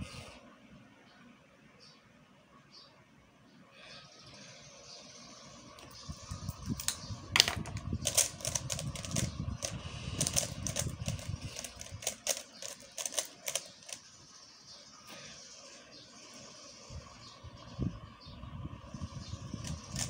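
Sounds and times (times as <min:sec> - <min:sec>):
plastic puzzle cube clicking: 0:06.8 - 0:14.0.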